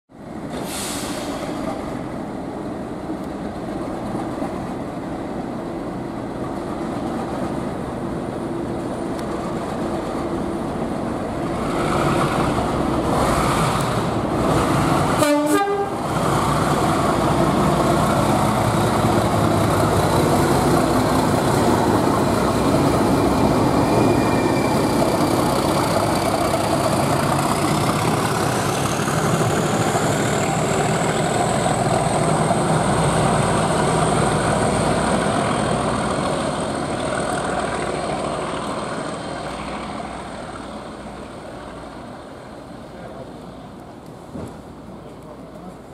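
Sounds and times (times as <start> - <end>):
diesel locomotive engine thrash: 0.4 - 2.1.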